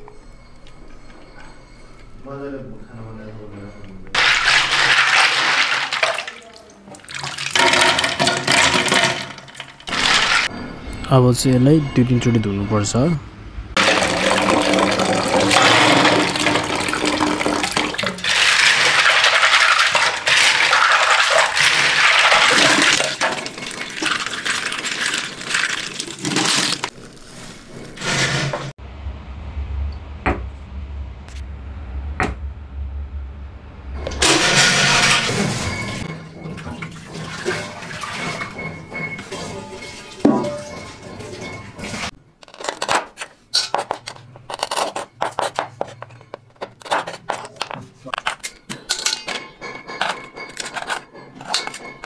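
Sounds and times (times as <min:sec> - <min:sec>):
tap water running into metal pot: 0:13.8 - 0:26.9
low hum: 0:28.8 - 0:36.7.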